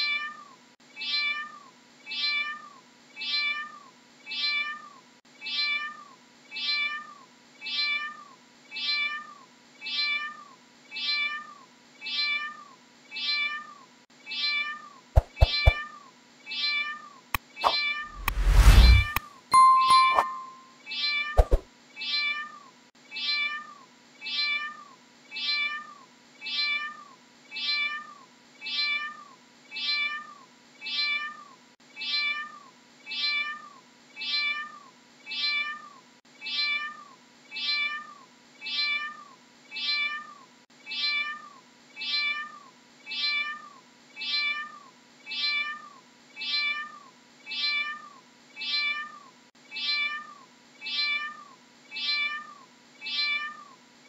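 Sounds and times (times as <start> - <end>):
cat meowing: 47.6 - 53.7.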